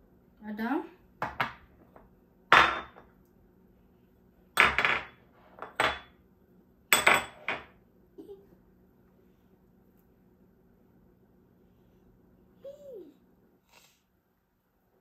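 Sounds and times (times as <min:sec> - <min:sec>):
dishes and utensils clinking: 0:04.6 - 0:06.2, 0:07.0 - 0:07.7.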